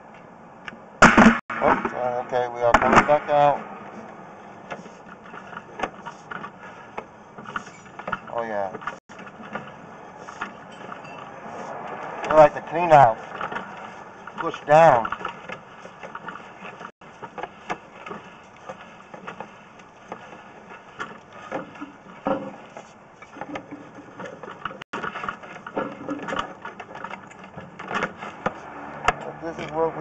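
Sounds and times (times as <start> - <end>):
push cable knocking and rattling: 4.7 - 9.8, 13.2 - 29.2.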